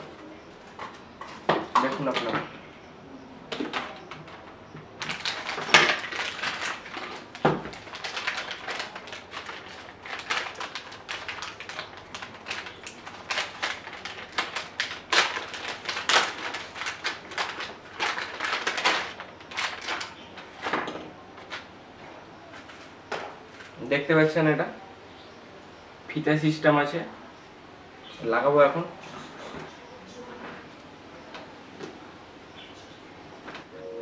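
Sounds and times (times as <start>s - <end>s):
plastic bags crinkling and tearing: 5.0s - 21.7s.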